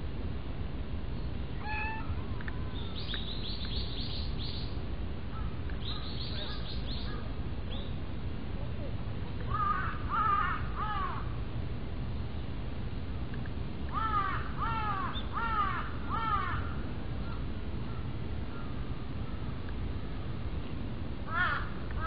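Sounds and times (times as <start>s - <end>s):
crow cawing: 9.5s - 11.3s, 13.9s - 17.4s, 21.3s - 22.0s.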